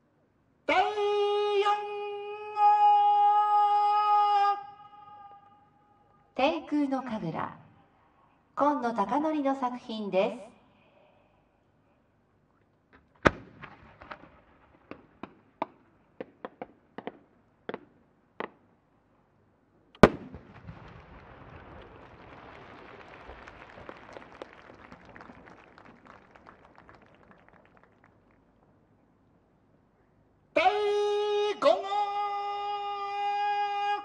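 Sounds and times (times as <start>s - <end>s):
dense firework crackle: 13.1s - 17.2s, 20.0s - 28.1s
firework shell report: 20.0s - 22.9s
loud firework burst: 20.0s - 23.8s.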